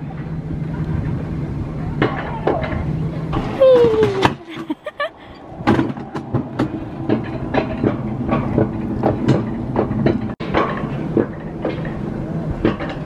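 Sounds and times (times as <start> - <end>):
low rumble: 0.0 - 13.0
cart wheels rattling and clacking: 5.6 - 13.0.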